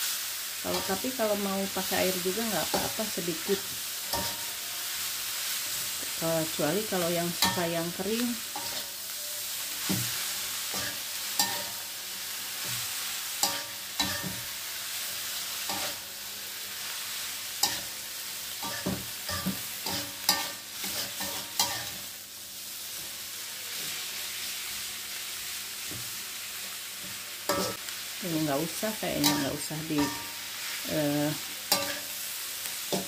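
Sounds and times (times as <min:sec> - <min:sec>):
mushrooms sizzling in a wok: 0:00.0 - 0:33.0
metal spatula scraping a pan: 0:07.3 - 0:11.9, 0:12.6 - 0:14.6, 0:15.5 - 0:16.0, 0:18.6 - 0:22.1, 0:29.1 - 0:30.5, 0:31.3 - 0:32.2.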